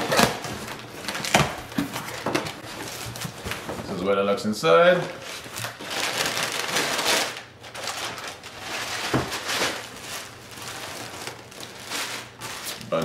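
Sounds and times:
packing paper crinkling: 4.9 - 13.0.

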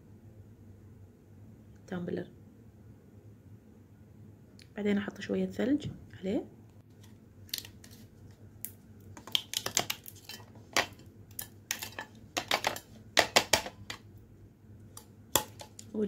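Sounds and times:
ice cubes cracking out of plastic tray: 9.2 - 14.0.

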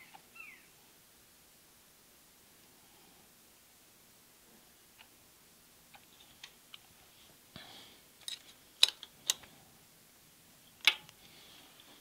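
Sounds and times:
sharp metal clicks and taps: 8.2 - 9.5.

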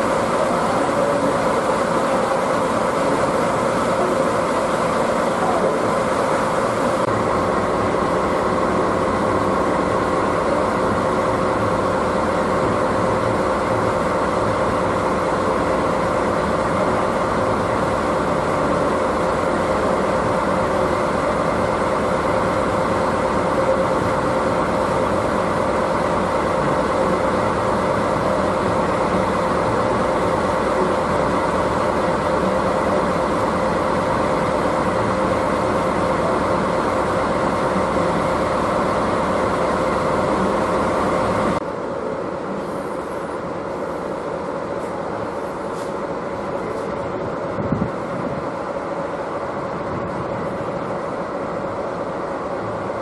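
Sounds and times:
train mechanical hum: 0.0 - 53.0.

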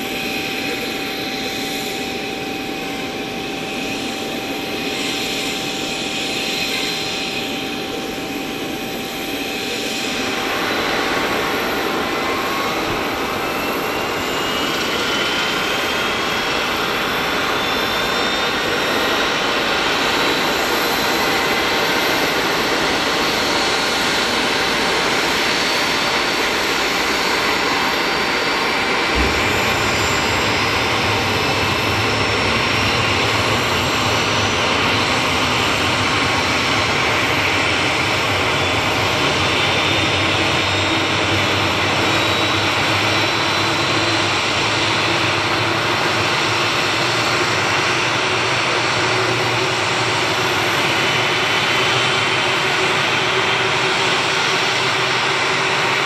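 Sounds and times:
jet engines roaring with whine: 0.0 - 56.0
low thump: 29.1 - 31.8.

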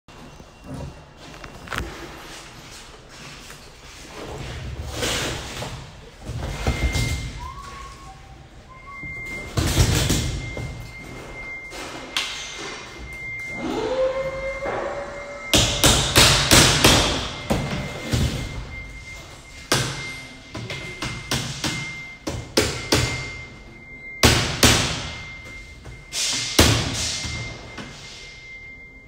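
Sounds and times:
hammer striking sheet metal: 14.7 - 17.3.

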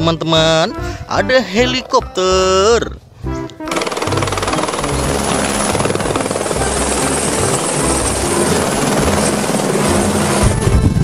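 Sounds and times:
helicopter engine noise: 3.7 - 11.0
helicopter rotor chop: 3.7 - 11.0.

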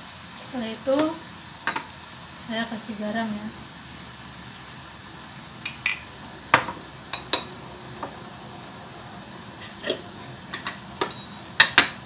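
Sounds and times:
low steady hiss: 0.0 - 12.0
kitchen utensils clinking: 5.6 - 7.5, 9.7 - 12.0.

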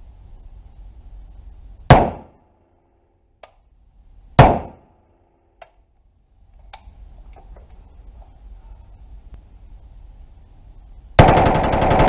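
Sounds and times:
rifle shots: 1.9 - 2.4, 4.4 - 4.9, 11.2 - 12.0.

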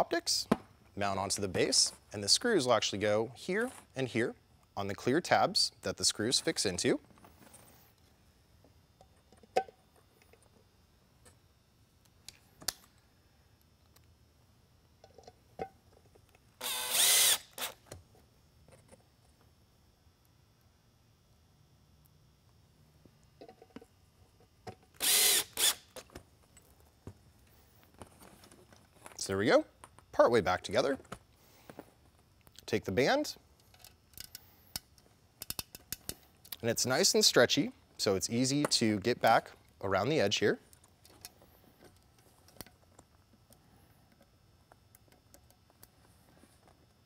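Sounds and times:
cordless drill driving screws: 16.6 - 17.8, 25.0 - 25.9.

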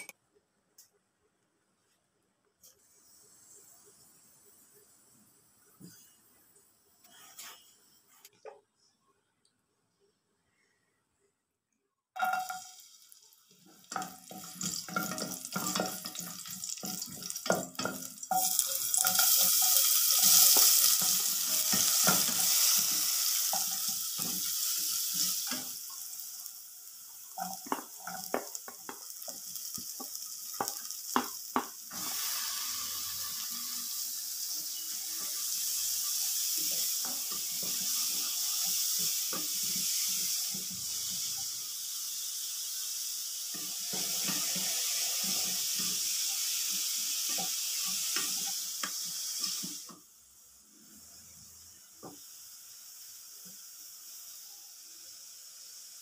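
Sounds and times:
vegetables sizzling in hot oil: 12.2 - 56.0.

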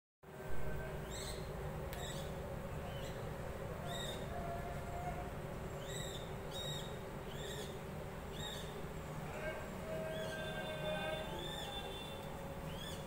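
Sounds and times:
low background hum: 0.3 - 13.0
birds chirping: 10.0 - 13.0.

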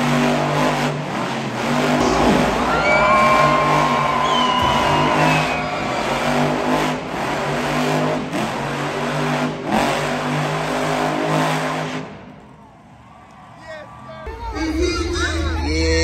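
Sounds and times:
monster truck engine revving: 0.0 - 12.5.

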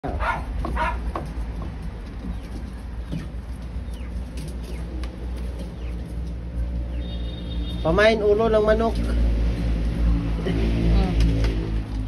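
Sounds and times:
chickens peeping: 0.2 - 7.7.

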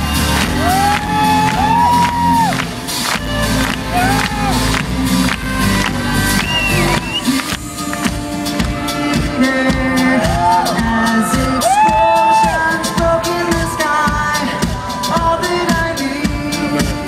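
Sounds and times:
steady drum beat: 0.0 - 17.0
person singing: 3.4 - 17.0.

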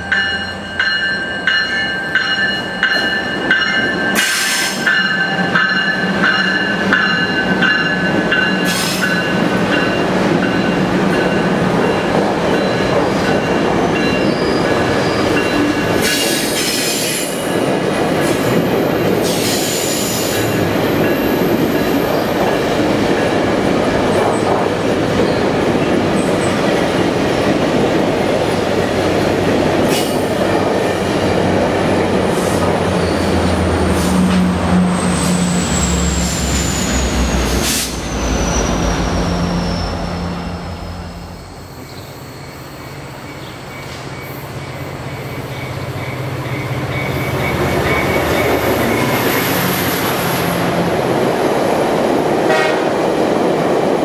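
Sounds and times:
diesel locomotive engine drone: 0.0 - 54.0
steel wheels rumbling on rail: 0.0 - 54.0
wheel squeal and screeches: 35.0 - 40.4.

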